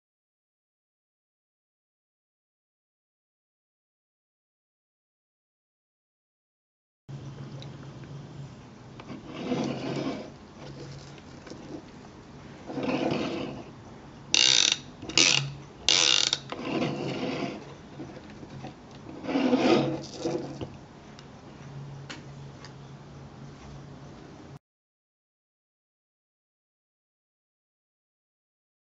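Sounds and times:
fishing reel clicker rattling: 0:14.4 - 0:16.5.

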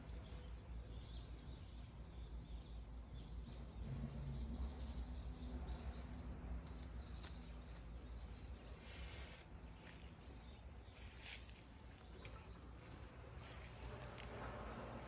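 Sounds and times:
low outdoor hum: 0:00.0 - 0:15.0
dry leaves crunching underfoot: 0:08.9 - 0:15.0.

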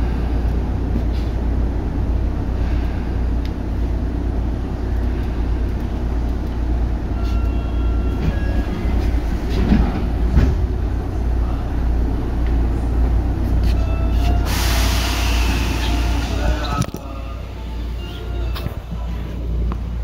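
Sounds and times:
train rumbling in tunnel: 0:00.0 - 0:20.0.

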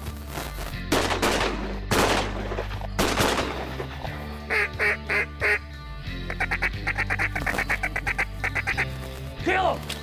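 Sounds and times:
shotgun blasts echoing: 0:00.9 - 0:03.8
duck quacks: 0:04.5 - 0:05.6, 0:06.3 - 0:08.9.

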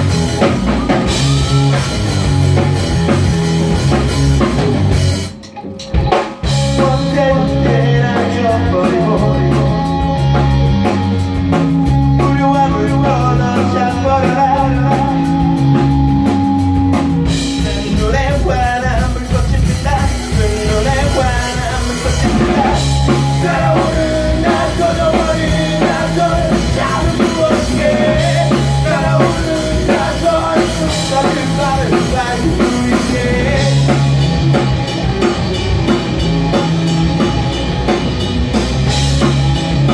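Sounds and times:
live rock band playing: 0:00.0 - 0:39.9
man singing: 0:06.6 - 0:10.3, 0:12.1 - 0:15.6, 0:17.5 - 0:34.2.

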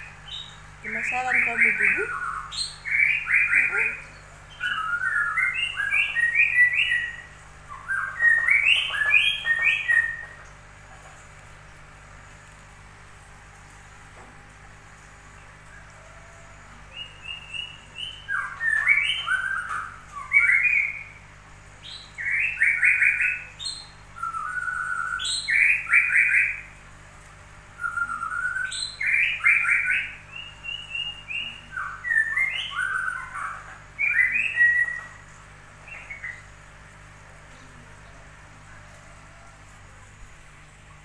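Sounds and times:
songbird trilling and whistling: 0:00.0 - 0:10.4, 0:16.9 - 0:21.2, 0:21.8 - 0:26.8, 0:27.8 - 0:36.5.

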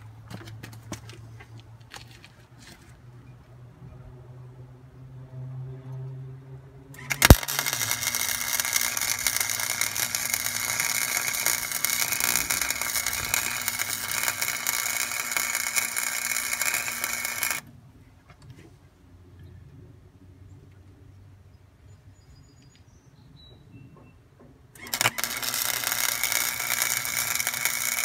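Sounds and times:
arc welder crackling and hissing: 0:07.0 - 0:17.6, 0:24.8 - 0:28.0.

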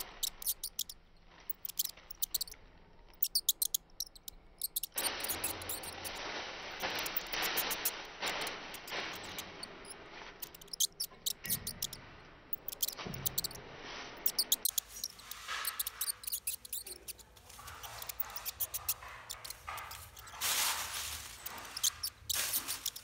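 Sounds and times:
high-pitched rodent squeaks: 0:00.0 - 0:06.2, 0:06.8 - 0:08.0, 0:08.7 - 0:13.6, 0:14.2 - 0:23.0
rustling of dry flowers: 0:04.8 - 0:12.0, 0:14.2 - 0:23.0.

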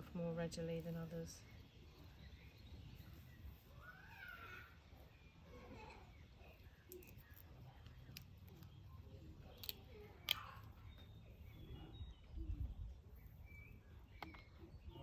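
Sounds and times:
plant stem snapping: 0:09.4 - 0:10.7.

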